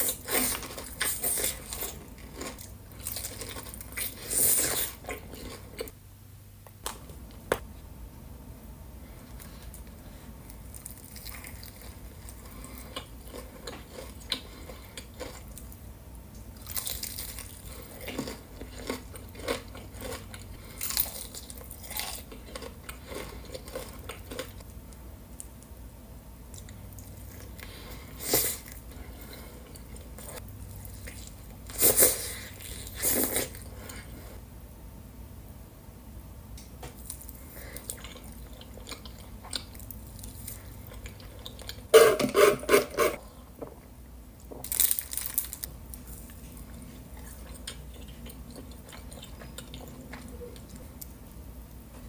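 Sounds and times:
crunchy bites: 0:44.6 - 0:45.7
wet chewing: 0:46.3 - 0:51.2.

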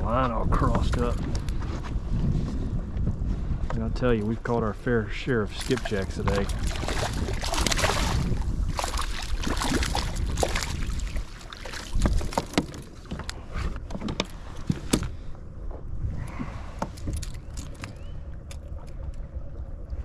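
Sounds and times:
wind buffeting microphone: 0:00.0 - 0:20.0
fishing gear clicking and rattling: 0:05.6 - 0:15.2, 0:16.3 - 0:19.6.

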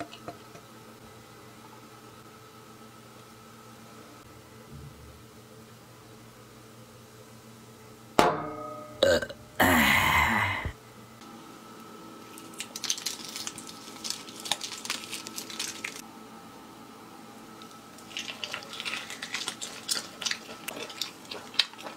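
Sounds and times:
faint steady hum: 0:00.0 - 0:21.9
crackly tearing of crisp meat: 0:12.2 - 0:16.0, 0:17.6 - 0:21.9.

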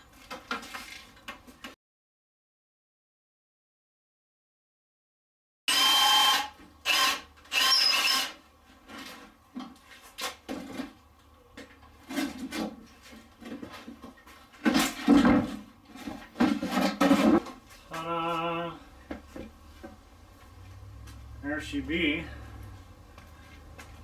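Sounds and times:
cordless drill whining: 0:05.7 - 0:08.4.

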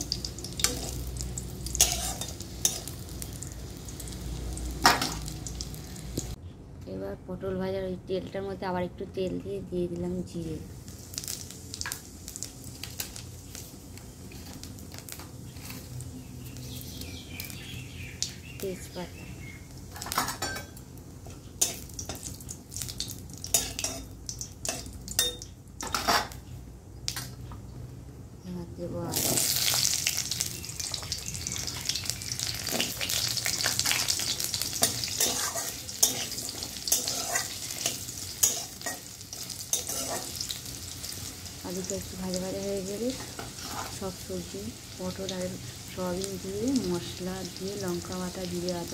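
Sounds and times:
seeds sizzling and popping in oil: 0:00.0 - 0:06.4, 0:09.9 - 0:27.5, 0:29.0 - 0:48.9
spatula stirring in pan: 0:01.7 - 0:03.0, 0:32.7 - 0:40.7, 0:43.1 - 0:44.0.

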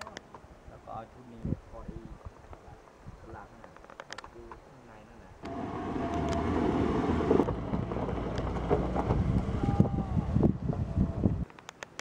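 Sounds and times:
pickup truck engine: 0:05.4 - 0:09.7
wind buffeting microphone: 0:05.4 - 0:11.5.

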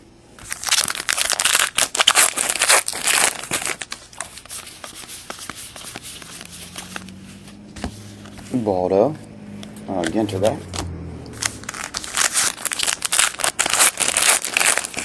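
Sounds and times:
foil wrapper tearing and crinkling: 0:00.4 - 0:07.2, 0:11.4 - 0:15.0
cards clicking and rustling: 0:00.4 - 0:08.6, 0:09.6 - 0:15.0.

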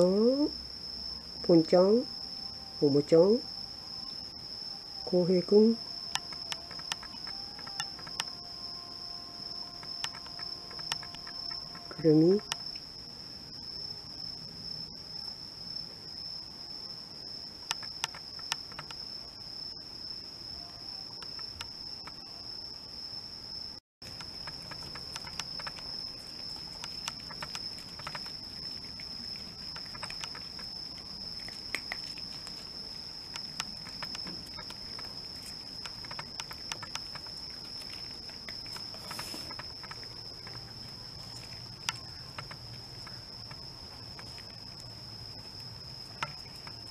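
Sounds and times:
crickets trilling: 0:00.0 - 0:46.9
cats eating dry kibble: 0:24.0 - 0:46.9.

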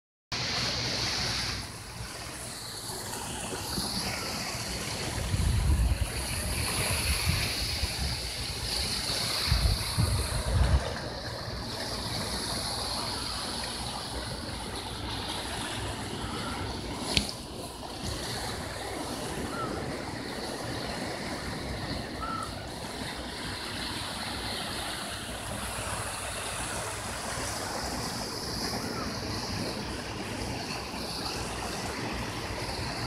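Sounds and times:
wind buffeting microphone: 0:04.5 - 0:12.6.

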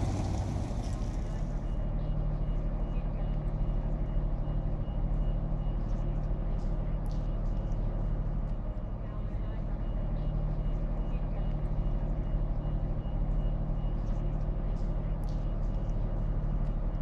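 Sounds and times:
heavy machinery drone: 0:00.0 - 0:01.8.

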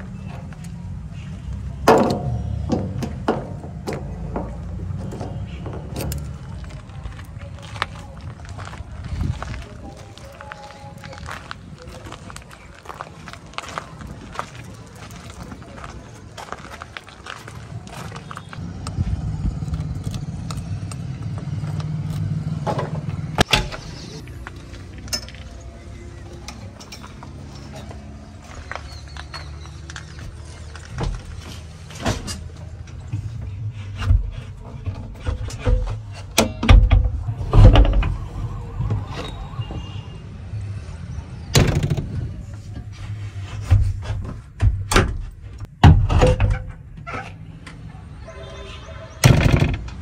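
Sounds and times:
low engine rumble: 0:00.0 - 0:45.8
low rumble: 0:33.2 - 0:41.3.

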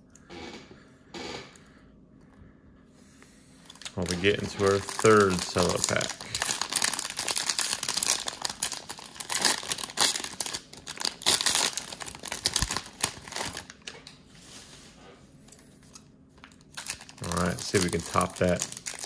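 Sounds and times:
plastic wrapper crinkling: 0:03.7 - 0:14.0, 0:16.4 - 0:19.0.

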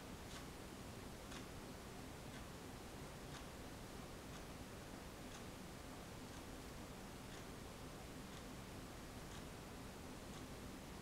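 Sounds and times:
steady low hiss: 0:00.0 - 0:11.0
faint ticks: 0:00.2 - 0:00.6, 0:01.2 - 0:01.6, 0:02.3 - 0:02.6, 0:03.3 - 0:03.6, 0:04.3 - 0:04.6, 0:05.3 - 0:05.6, 0:06.3 - 0:06.6, 0:07.2 - 0:07.7, 0:08.3 - 0:08.6, 0:09.2 - 0:09.6, 0:10.3 - 0:10.6.

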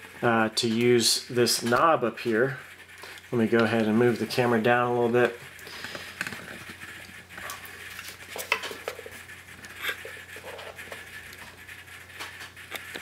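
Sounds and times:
camera handling rubbing and knocks: 0:05.8 - 0:11.1.

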